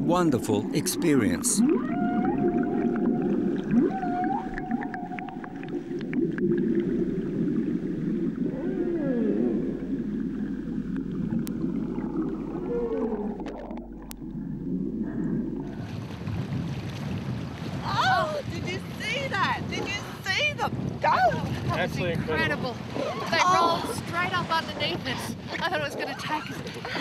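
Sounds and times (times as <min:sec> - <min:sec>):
whale song: 0:00.8 - 0:16.0.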